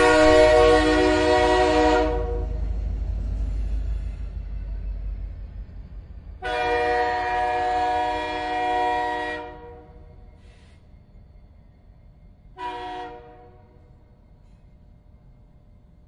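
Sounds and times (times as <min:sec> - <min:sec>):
train horn blasts: 0:00.0 - 0:02.7, 0:06.4 - 0:10.2, 0:12.5 - 0:13.9.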